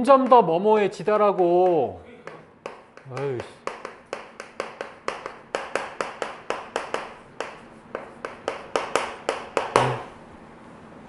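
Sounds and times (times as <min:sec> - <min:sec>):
chalk tapping and scraping on chalkboard: 0:01.3 - 0:10.1.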